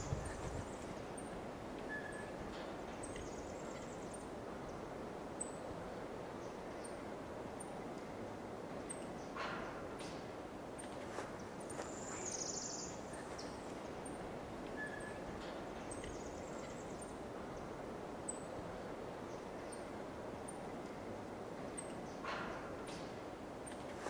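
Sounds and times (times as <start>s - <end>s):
small birds chirping: 0.0s - 4.8s, 10.8s - 18.6s
background hiss: 0.0s - 24.0s.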